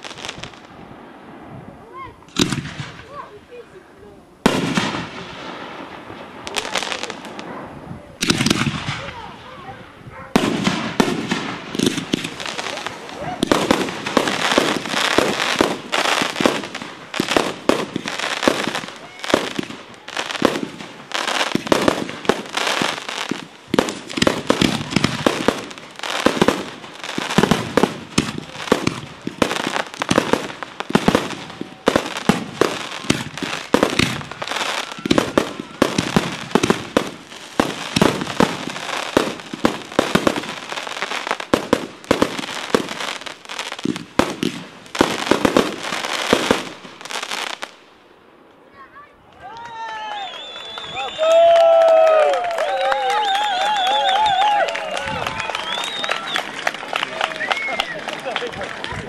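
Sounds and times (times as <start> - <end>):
firework crackling: 0.0 - 59.0
firework shells bursting: 10.4 - 47.7.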